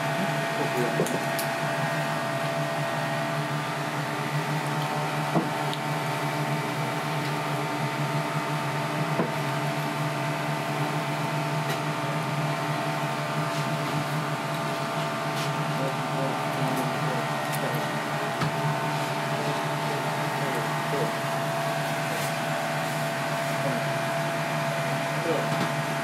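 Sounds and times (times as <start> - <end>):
kitchen equipment humming: 0.0 - 26.0.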